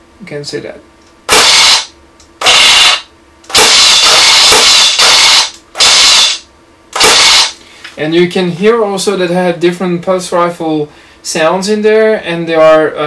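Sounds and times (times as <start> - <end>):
rifle firing sound effect bursts: 1.3 - 6.4, 7.0 - 7.6.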